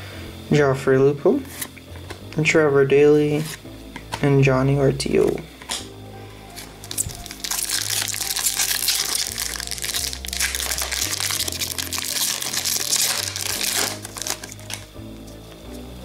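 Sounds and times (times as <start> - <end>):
background music with bass line: 1.7 - 16.0
plastic wrapper crinkling and tearing: 6.6 - 15.0.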